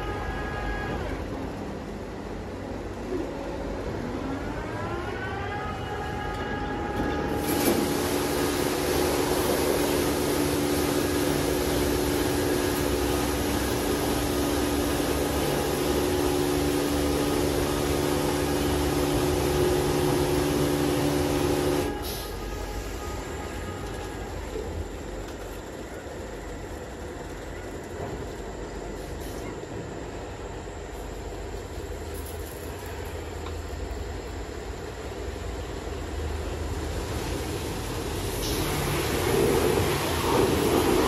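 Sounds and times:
pump motor whine: 4.4s - 26.7s, 36.6s - 41.0s
steady pump hum: 5.2s - 41.0s
water jets hissing: 7.4s - 23.0s, 36.8s - 41.0s.

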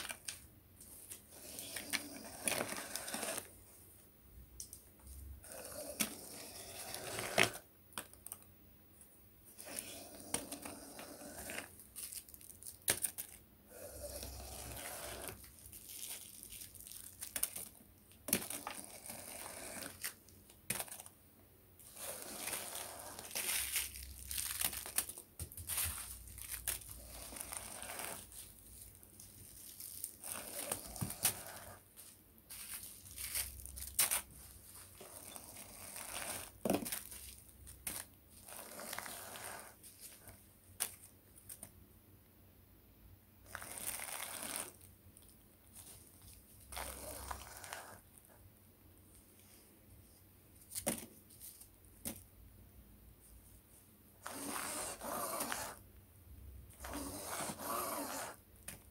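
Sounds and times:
plastic bags crinkling: 11.5s - 13.4s, 14.8s - 18.8s, 22.4s - 38.2s.

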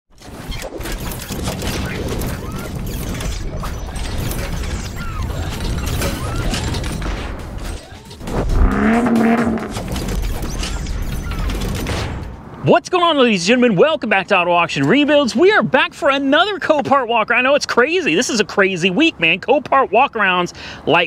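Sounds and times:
mechanical clicking and clanking: 0.2s - 8.6s, 9.5s - 12.4s
deep rumble: 8.2s - 10.3s.

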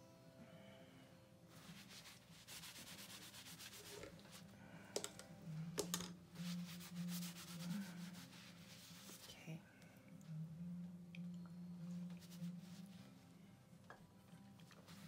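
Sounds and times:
tools rubbing on hard surface: 1.5s - 4.4s
low hum: 4.4s - 14.5s.

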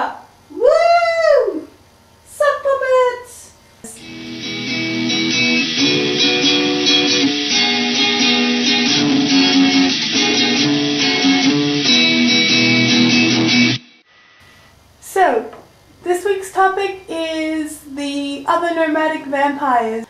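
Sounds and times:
guitar intro music: 4.0s - 14.0s.

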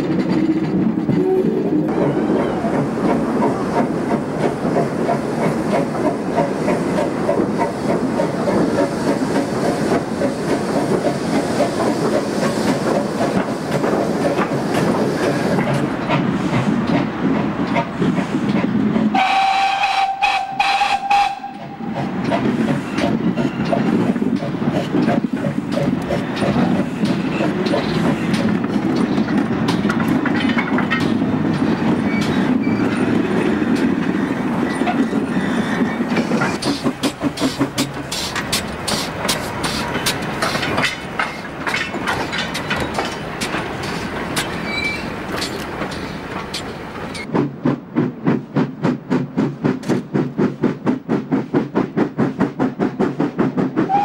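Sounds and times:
steam train running: 0.0s - 54.0s
steam whistle blast: 19.2s - 21.6s.

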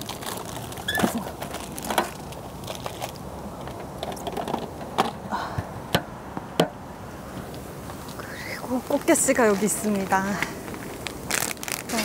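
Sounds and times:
food packaging crinkling: 0.0s - 3.3s, 10.6s - 12.0s.

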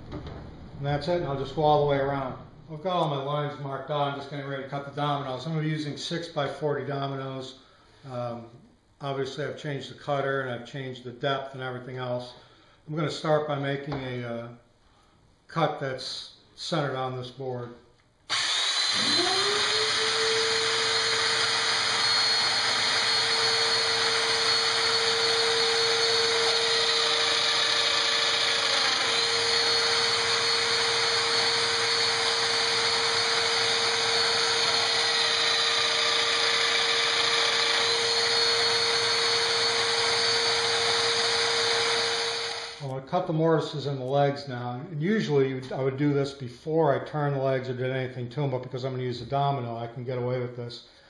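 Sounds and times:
power tool motor whine: 18.3s - 42.8s
dust extractor suction: 18.3s - 42.9s.

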